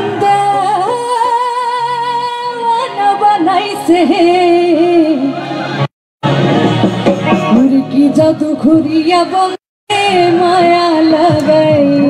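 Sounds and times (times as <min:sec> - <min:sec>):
instrumental accompaniment: 0:05.7 - 0:09.5.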